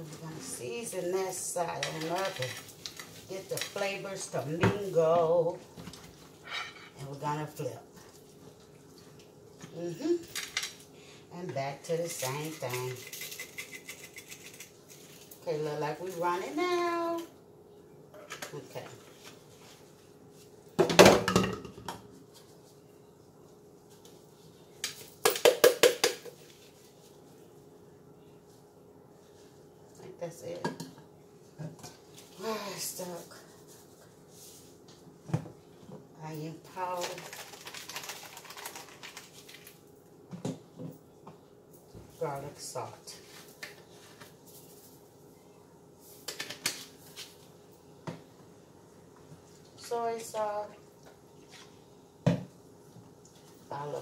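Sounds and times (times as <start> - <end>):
spice shaker rattling: 12.4 - 15.2, 37.0 - 39.4.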